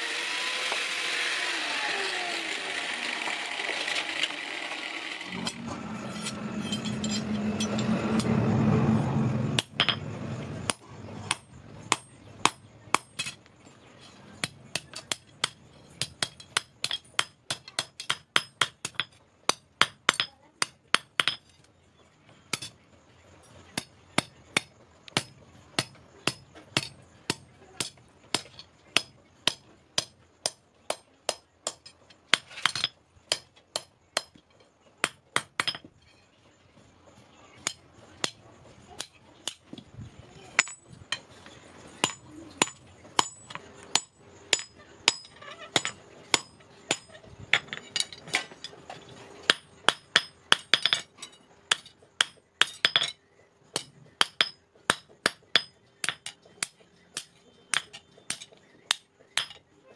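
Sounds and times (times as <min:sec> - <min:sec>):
loud continuous noise: 0:00.0 - 0:29.7
hammer striking metal on anvil: 0:49.5 - 0:51.1.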